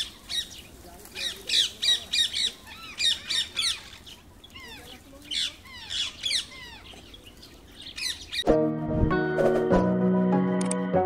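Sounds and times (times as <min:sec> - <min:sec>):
parakeets screeching: 0:01.2 - 0:08.4.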